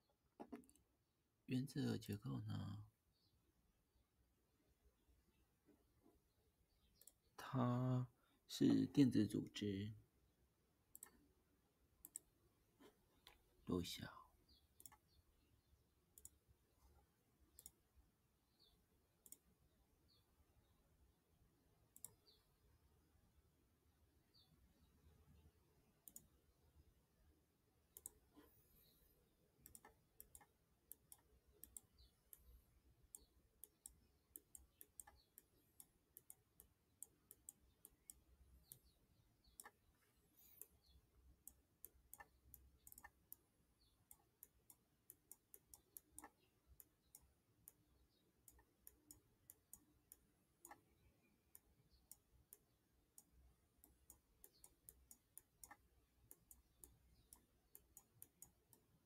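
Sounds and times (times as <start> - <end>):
pen clicking on screen: 33.1 - 38.9.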